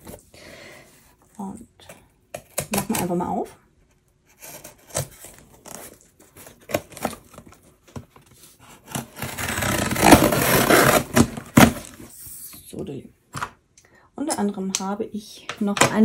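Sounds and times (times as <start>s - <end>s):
packaging tearing and crinkling: 8.9s - 12.0s.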